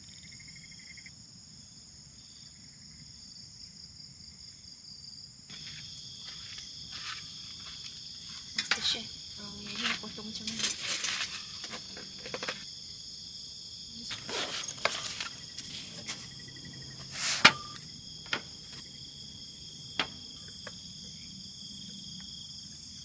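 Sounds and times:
night insects chorus: 0:00.0 - 0:23.0
cooking gear clinking on metal table: 0:14.1 - 0:16.3.

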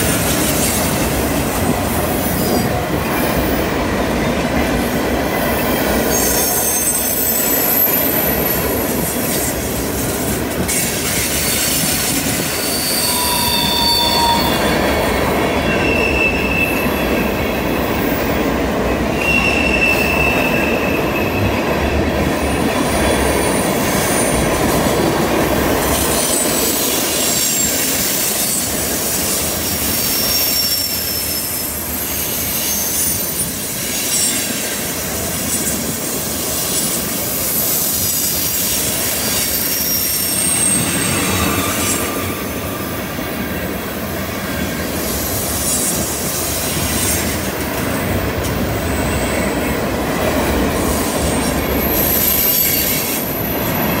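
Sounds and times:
train wheels rumbling on rails: 0:00.0 - 0:54.0
wheel flange squeals: 0:11.4 - 0:17.2, 0:29.9 - 0:33.5, 0:39.3 - 0:42.4.

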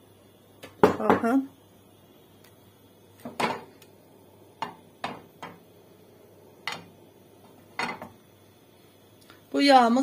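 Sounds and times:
kitchenware clicking and knocking: 0:07.7 - 0:08.2.

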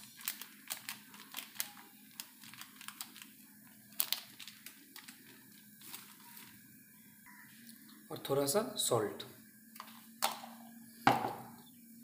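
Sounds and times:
plastic packet crinkling: 0:00.0 - 0:06.6.

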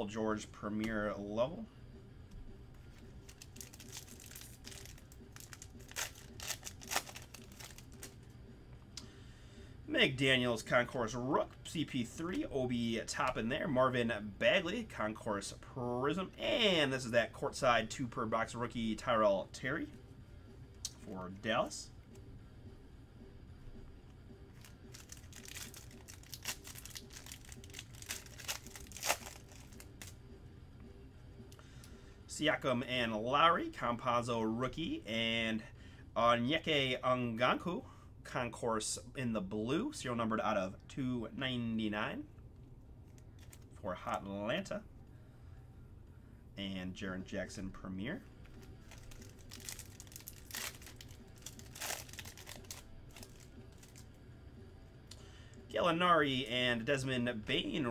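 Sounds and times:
plastic wrapper crinkling and tearing: 0:03.2 - 0:08.2, 0:24.6 - 0:30.2, 0:43.1 - 0:43.7, 0:48.4 - 0:54.1.

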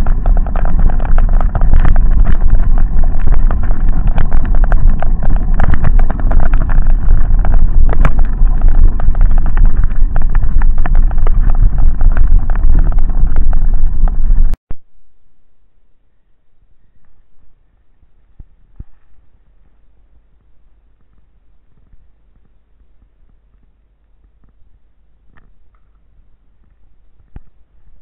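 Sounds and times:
bike rattling: 0:00.0 - 0:14.6
wind buffeting microphone: 0:00.0 - 0:14.6.

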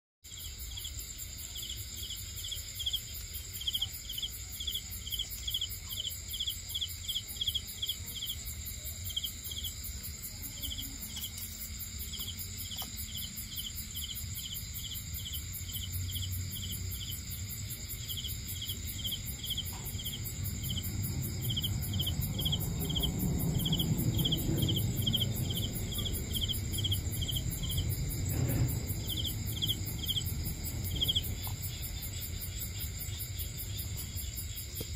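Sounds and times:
crickets chirping: 0:00.3 - 0:34.9
insect trill: 0:00.3 - 0:34.9
low rumble: 0:18.8 - 0:34.8.

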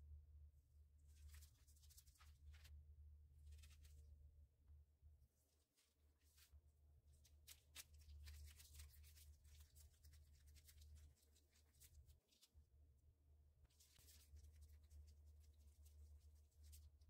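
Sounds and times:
low steady hum: 0:00.0 - 0:17.0
plastic gloves rustling: 0:01.0 - 0:02.7, 0:05.3 - 0:12.6, 0:13.7 - 0:17.0.

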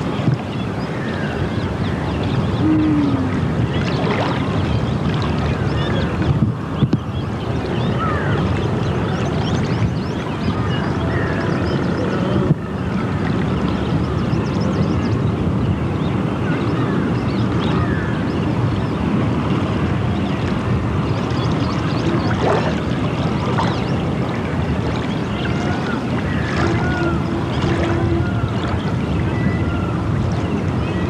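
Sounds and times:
river flowing: 0:00.0 - 0:06.2, 0:18.4 - 0:30.8
wind on microphone: 0:00.0 - 0:31.0.

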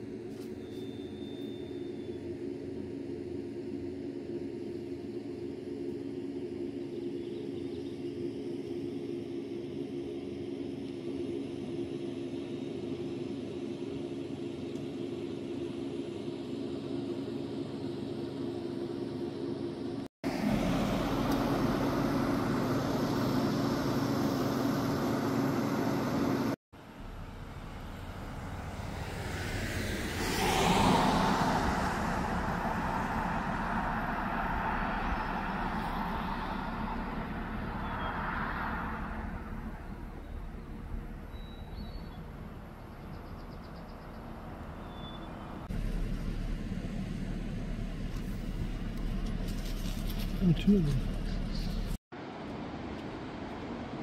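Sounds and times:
low hum: 0:00.0 - 0:54.0
car passing: 0:20.2 - 0:51.9
rushing noise: 0:27.0 - 0:40.8.

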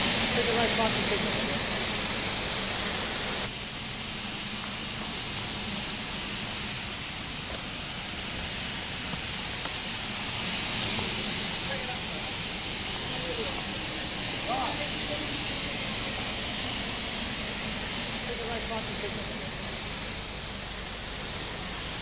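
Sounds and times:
steam locomotive hissing: 0:00.0 - 0:22.0.

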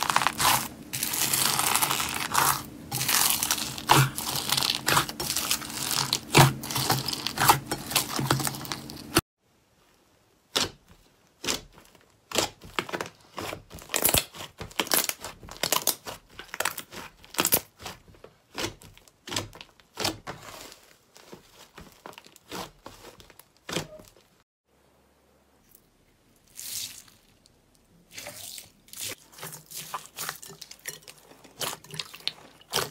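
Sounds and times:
slime crackling and popping: 0:00.0 - 0:09.2, 0:11.4 - 0:20.2.

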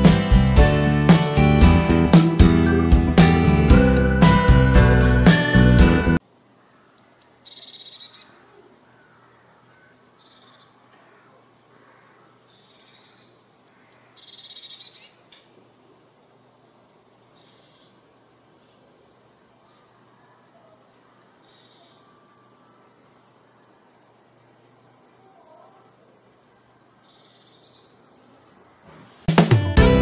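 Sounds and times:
blue tit singing: 0:11.8 - 0:15.3, 0:20.7 - 0:22.0.

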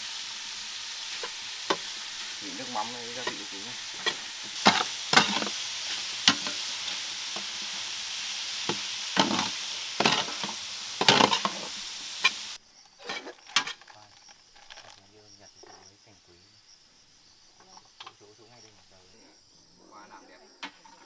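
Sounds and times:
meat sizzling in a metal pan: 0:00.0 - 0:15.0, 0:17.2 - 0:19.2
ladle scraping and knocking pan: 0:01.1 - 0:07.8, 0:08.6 - 0:12.4.

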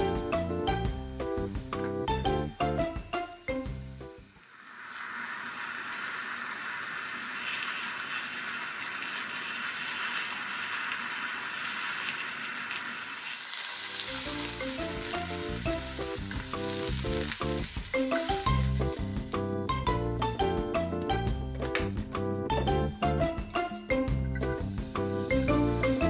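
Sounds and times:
background music: 0:00.0 - 0:04.3, 0:14.0 - 0:26.0
mushrooms sizzling in a frying pan: 0:00.0 - 0:19.5, 0:24.3 - 0:26.0.

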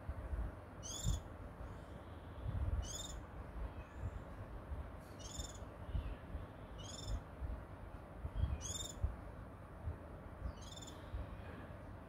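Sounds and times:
songbird singing high phrase: 0:00.8 - 0:01.3, 0:02.8 - 0:04.2, 0:05.2 - 0:07.2, 0:08.3 - 0:09.1, 0:10.4 - 0:11.1.

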